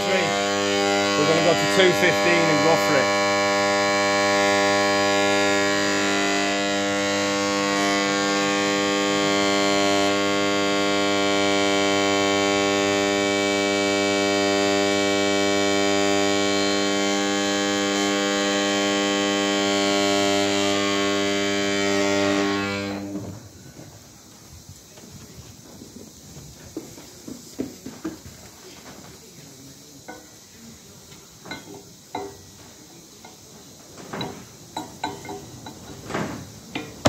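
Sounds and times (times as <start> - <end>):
induction heater humming: 0.0 - 23.6.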